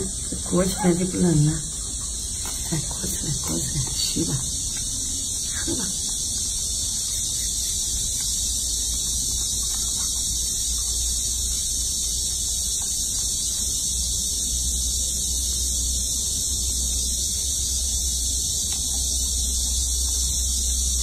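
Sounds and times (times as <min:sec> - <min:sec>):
high-pitched hiss: 0:00.0 - 0:21.0.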